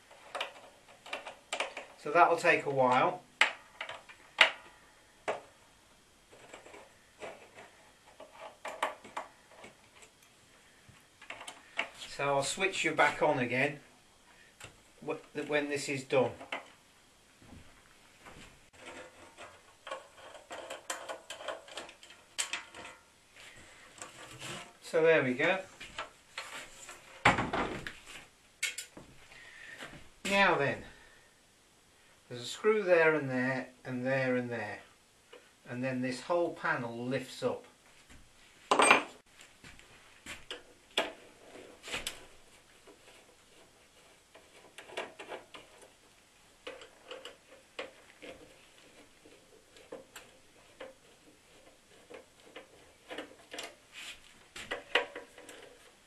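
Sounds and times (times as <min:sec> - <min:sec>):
screwdriver clicking and scraping: 0:00.1 - 0:02.0, 0:06.3 - 0:10.3, 0:18.8 - 0:23.0, 0:46.6 - 0:53.8.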